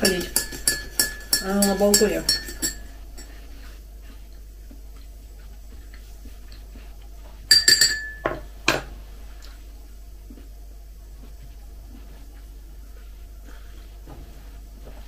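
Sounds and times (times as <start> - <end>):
teaspoon clinking against mug: 0.0 - 3.4, 7.5 - 8.4.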